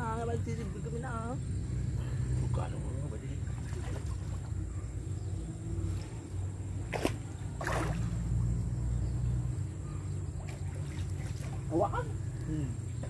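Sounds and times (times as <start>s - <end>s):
low steady rumble: 0.0s - 13.0s
water sloshing and splashing: 3.3s - 4.8s, 5.8s - 8.6s, 10.2s - 12.2s
sharp splash: 3.5s - 4.5s, 6.8s - 8.3s, 10.4s - 11.8s
rush of water: 6.8s - 8.2s.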